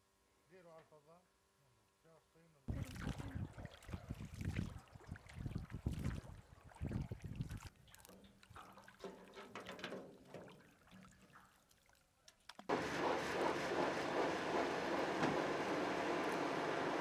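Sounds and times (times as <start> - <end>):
water dripping and trickling: 2.7 - 12.7.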